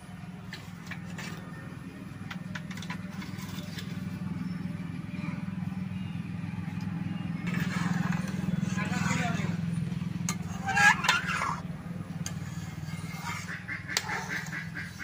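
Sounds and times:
metal ladle stirring and scraping: 0.5 - 1.6, 2.3 - 4.6, 7.4 - 15.0.

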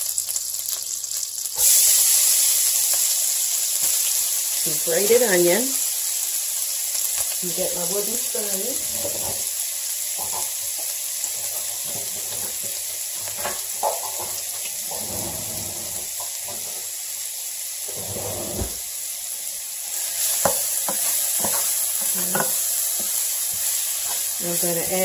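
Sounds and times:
onion sizzling in a skillet: 0.0 - 25.0
wooden spoon stirring: 11.2 - 16.6.

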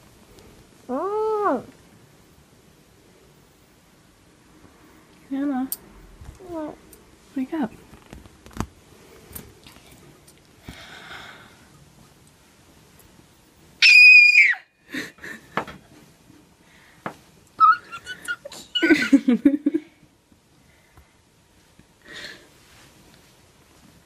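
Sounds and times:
girl squealing: 13.8 - 14.7, 17.6 - 19.0.

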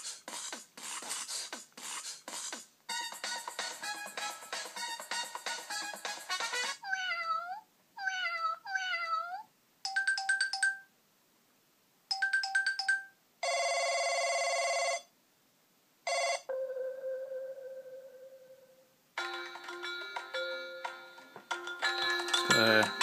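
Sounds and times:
synthetic cat meows: 6.8 - 9.5.

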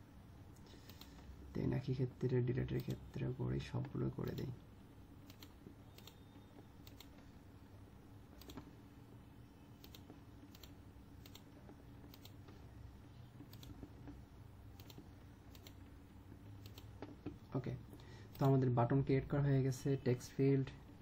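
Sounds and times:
low steady hum: 0.0 - 21.0
computer mouse clicks: 0.6 - 1.3, 5.2 - 7.3, 8.3 - 8.7, 9.8 - 12.7, 13.4 - 18.6.

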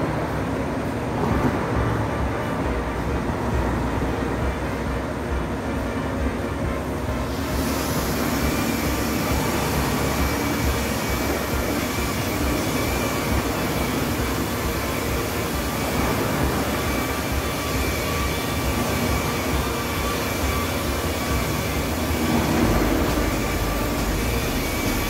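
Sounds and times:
electric polisher whining: 7.2 - 25.0.

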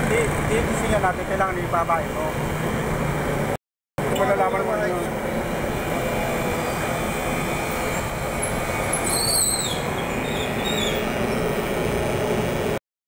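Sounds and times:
ice cream machine running: 4.1 - 12.8
high-pitched squeal: 4.2 - 12.8.

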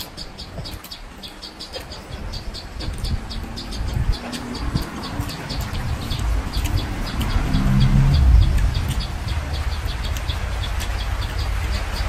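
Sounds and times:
small birds chirping: 0.0 - 12.0
low rumble: 2.7 - 12.0.

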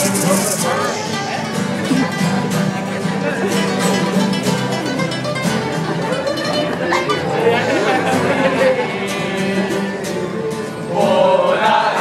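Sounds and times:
men singing: 0.0 - 2.0, 7.3 - 12.0
acoustic guitars strumming: 0.0 - 12.0.

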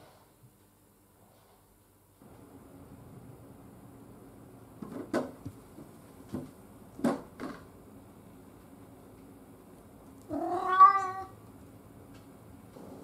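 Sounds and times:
cat meowing: 10.3 - 11.4.

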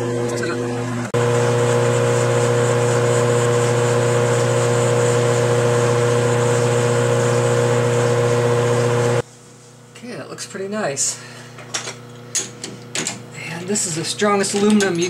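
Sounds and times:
lathe motor and gear hum: 0.0 - 9.2.

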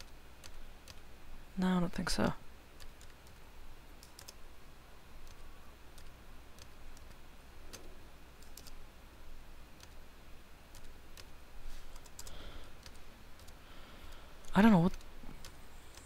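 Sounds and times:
computer mouse clicks: 0.0 - 1.1, 2.8 - 3.4, 4.0 - 4.4, 5.2 - 8.8, 9.8 - 10.0, 10.7 - 11.3, 11.9 - 16.0
low steady hum: 0.0 - 16.0.

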